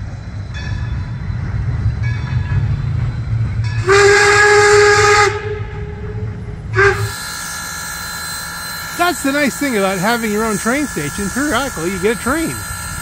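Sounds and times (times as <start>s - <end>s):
low rumble of moving train: 0.0s - 13.0s
steam whistle blast: 3.8s - 9.9s.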